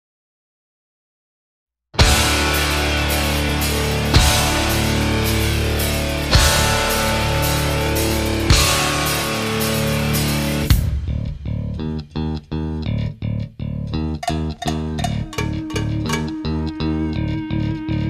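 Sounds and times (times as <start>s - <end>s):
heavy rock music: 2.0s - 11.9s, 14.0s - 18.0s.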